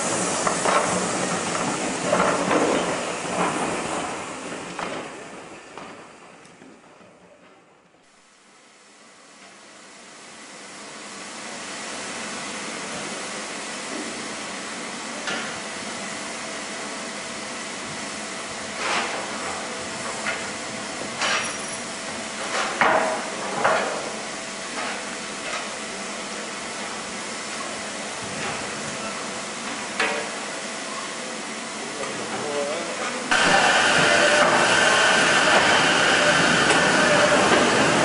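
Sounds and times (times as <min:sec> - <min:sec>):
steam locomotive hissing: 0:00.0 - 0:06.4, 0:09.8 - 0:38.0.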